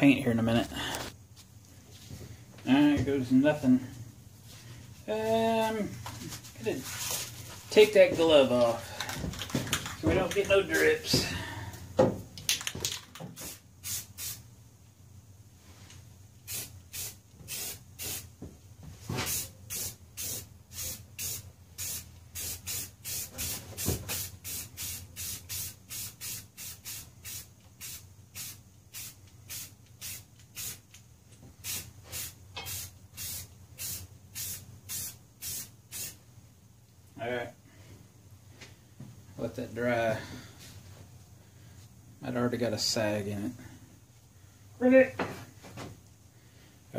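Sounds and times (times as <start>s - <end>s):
spray paint can hissing: 13.4s - 14.4s, 16.4s - 18.3s, 19.3s - 31.0s, 31.6s - 36.2s.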